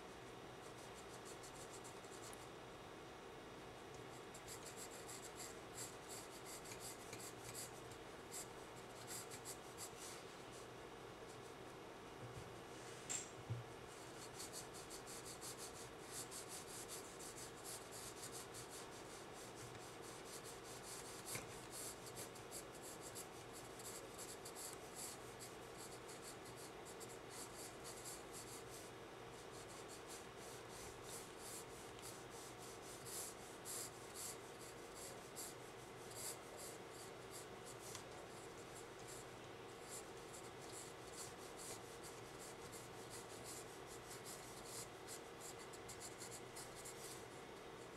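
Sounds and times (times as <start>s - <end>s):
faint steady hum: 0.0s - 47.9s
pencil scratching on paper: 4.3s - 10.0s, 14.2s - 47.2s.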